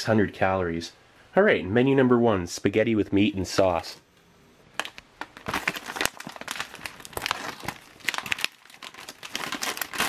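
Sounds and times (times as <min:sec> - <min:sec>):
plastic bag crinkling: 0:04.8 - 0:10.0
plastic bag tearing open: 0:04.8 - 0:10.0.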